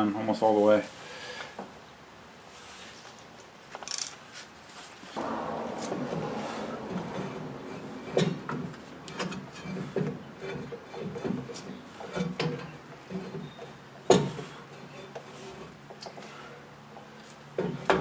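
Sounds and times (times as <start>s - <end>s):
brake drum scraping and clunking: 5.2s - 16.5s.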